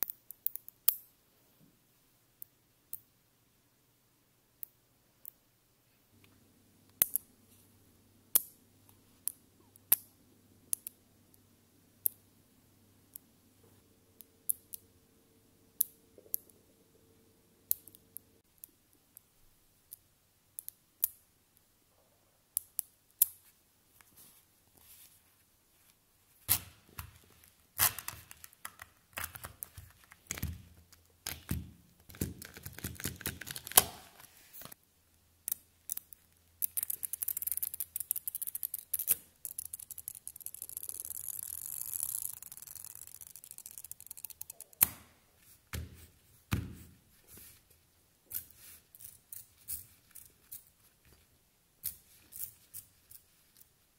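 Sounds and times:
magnetic balls clicking together: 35.4s - 45.0s.

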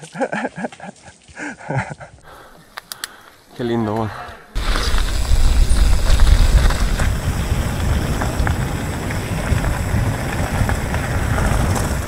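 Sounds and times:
bike tyres crunching on gravel: 4.6s - 12.0s
sharp ticks of gravel: 4.6s - 12.0s
wind buffeting microphone: 4.6s - 12.0s.

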